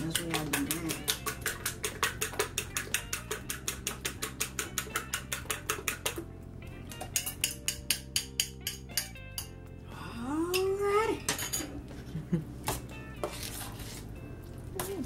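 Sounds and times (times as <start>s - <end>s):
fork beating eggs in bowl: 0.0s - 6.2s.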